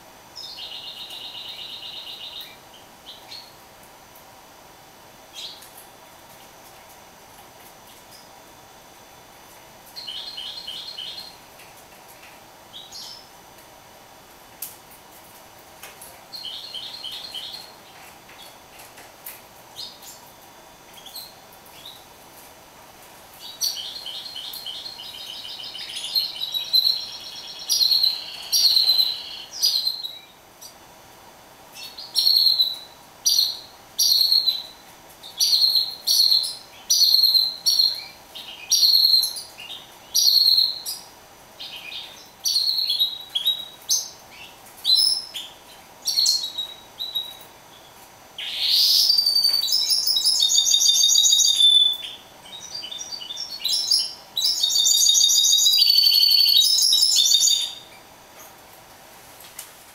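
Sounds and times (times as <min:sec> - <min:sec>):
caged songbird singing: 0:00.3 - 0:03.6, 0:05.3 - 0:05.8, 0:09.8 - 0:11.6, 0:12.7 - 0:13.4, 0:16.3 - 0:18.7, 0:19.7 - 0:22.1, 0:23.3 - 0:30.8, 0:31.7 - 0:58.1.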